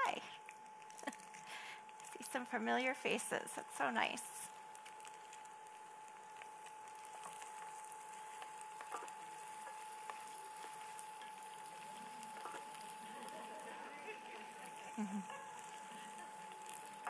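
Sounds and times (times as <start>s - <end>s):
dumplings sizzling in a skillet: 0.0s - 17.0s.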